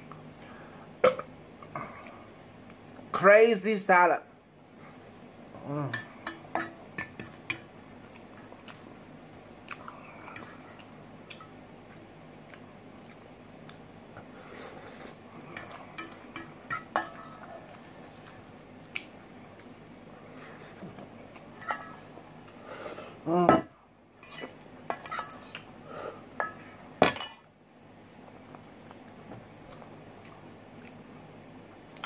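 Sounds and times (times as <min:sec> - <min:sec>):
fork clinking on metal bowl: 0:05.9 - 0:07.7
chewing salad: 0:06.0 - 0:19.9, 0:28.1 - 0:31.0.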